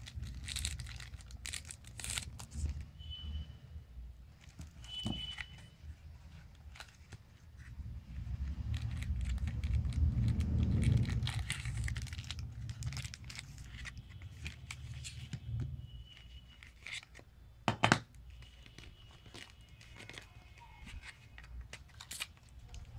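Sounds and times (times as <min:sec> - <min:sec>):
cardboard and plastic rustling: 0:00.0 - 0:02.9, 0:04.3 - 0:17.3, 0:18.3 - 0:22.9
dull handling rumble: 0:07.6 - 0:15.7.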